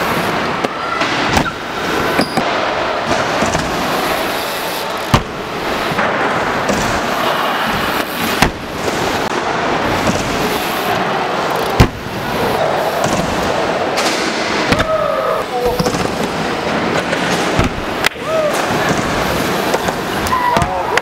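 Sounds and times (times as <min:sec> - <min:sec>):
steady rushing noise: 0:00.0 - 0:21.0
bmx bike landing bangs: 0:05.1 - 0:07.2, 0:07.8 - 0:09.2, 0:11.7 - 0:15.1, 0:17.2 - 0:18.0.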